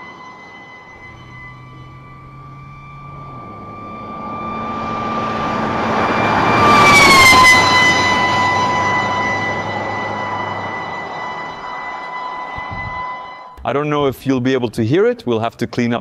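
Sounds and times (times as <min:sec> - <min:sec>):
single-tone siren passing: 0:00.0 - 0:13.6
truck tyre and wind noise: 0:00.9 - 0:13.2.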